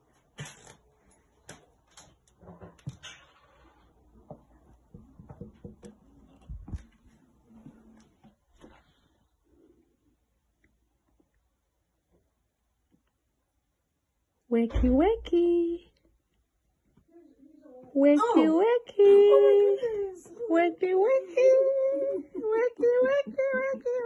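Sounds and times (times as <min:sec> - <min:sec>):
footsteps: 0:04.2 - 0:09.1.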